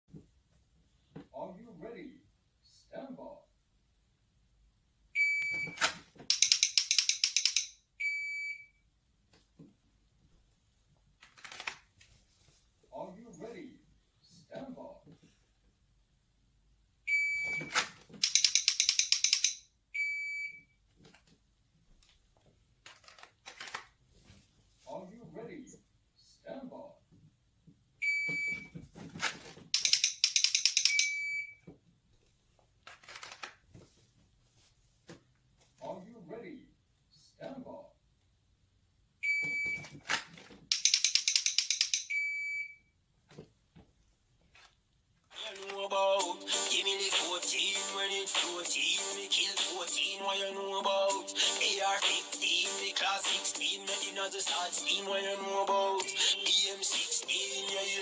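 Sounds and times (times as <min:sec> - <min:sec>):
sharp clicks: 0:06.3 - 0:07.8, 0:18.2 - 0:19.6, 0:29.8 - 0:31.1, 0:40.7 - 0:42.1
electronic timer beep: 0:07.4 - 0:08.8, 0:17.1 - 0:20.7, 0:30.7 - 0:31.6, 0:41.9 - 0:42.9.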